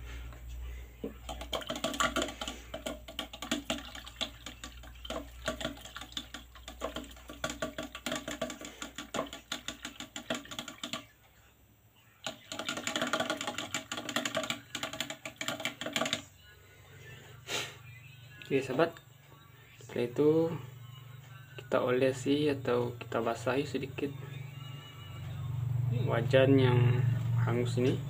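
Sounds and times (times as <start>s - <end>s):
stick stirring in plastic cup: 1.1s - 11.2s, 12.3s - 16.3s.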